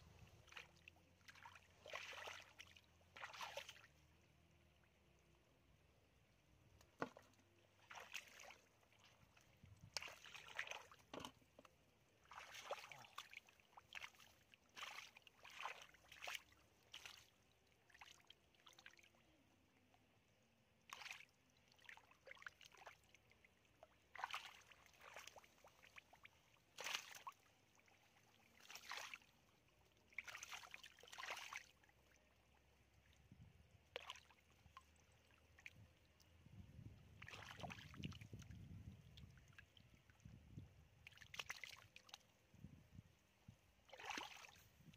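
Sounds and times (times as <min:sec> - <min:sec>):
hands splashing in wet mud: 0:12.3 - 0:17.2, 0:26.8 - 0:27.4, 0:28.6 - 0:29.2, 0:37.2 - 0:38.2, 0:43.9 - 0:44.6.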